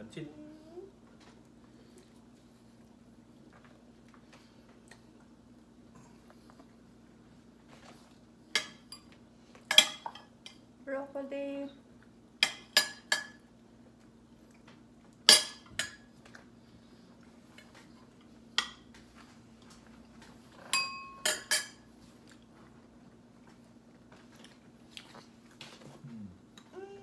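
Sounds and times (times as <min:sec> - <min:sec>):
faint steady hum: 0:00.0 - 0:27.0
forks clinking on plates: 0:20.6 - 0:21.9.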